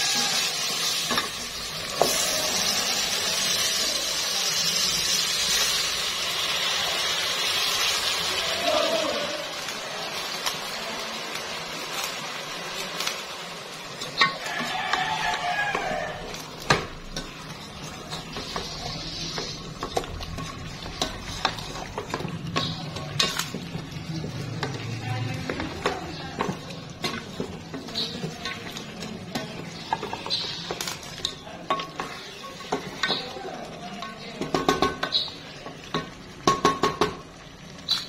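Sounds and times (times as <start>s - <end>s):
food sizzling: 0.0s - 38.0s
spoon scraping a pot: 14.0s - 33.3s.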